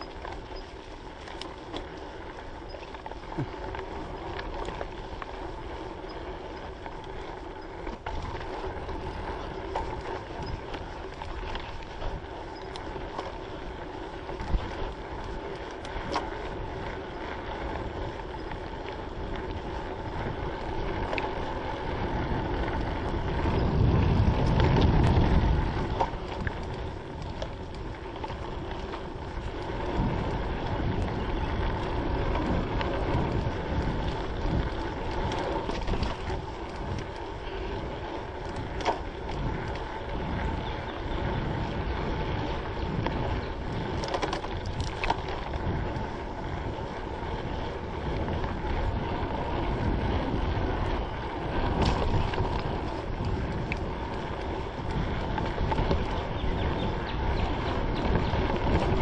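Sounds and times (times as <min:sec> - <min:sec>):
bike clicks and knocks: 0:00.0 - 0:59.0
mountain bike rattle and tyre noise: 0:00.0 - 0:59.0
wind on microphone: 0:07.7 - 0:59.0.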